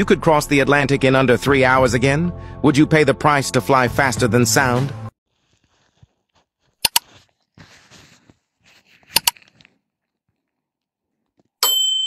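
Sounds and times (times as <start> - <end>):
mouse clicks: 6.8 - 7.2, 9.1 - 9.4.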